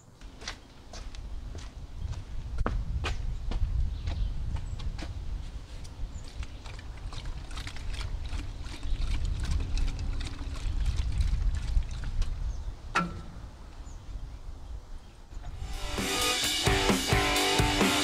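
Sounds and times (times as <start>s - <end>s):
liquid pouring and glugging from jug: 6.2s - 12.4s.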